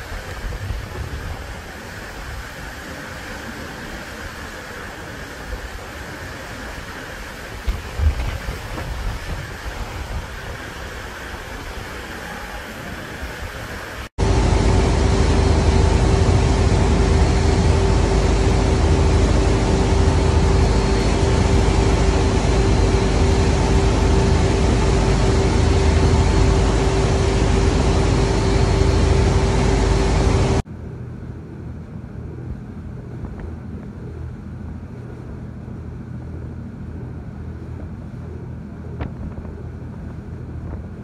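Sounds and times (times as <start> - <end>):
water rushing along a hull: 0.0 - 30.6
ferry engine drone: 0.0 - 41.0.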